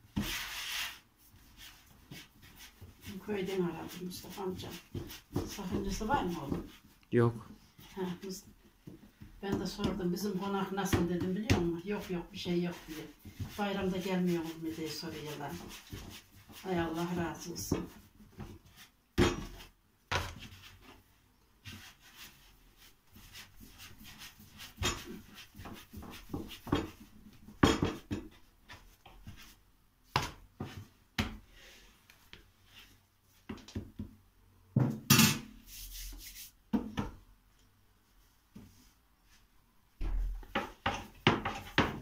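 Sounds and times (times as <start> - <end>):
soft rubbing of dough: 0.0 - 34.1, 35.6 - 36.7, 37.4 - 39.9
hands slapping dough on board: 23.6 - 29.4, 30.1 - 31.4, 33.4 - 34.2.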